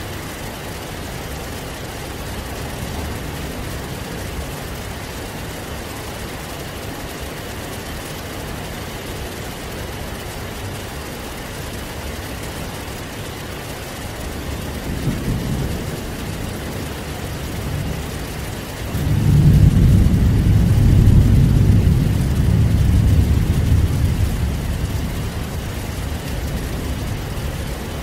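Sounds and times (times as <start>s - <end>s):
heavy rain falling: 0.0s - 28.0s
thunder rumbling: 14.0s - 28.0s.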